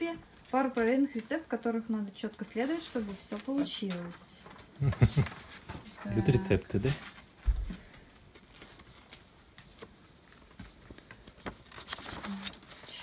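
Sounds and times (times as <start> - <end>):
packaging rustling: 8.2 - 13.0.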